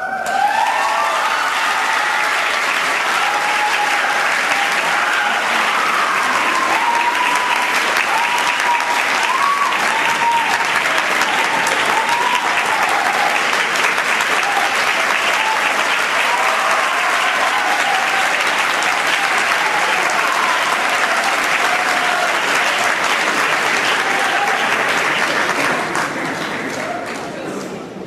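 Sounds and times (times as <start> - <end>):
audience applauding: 0.0 - 27.8.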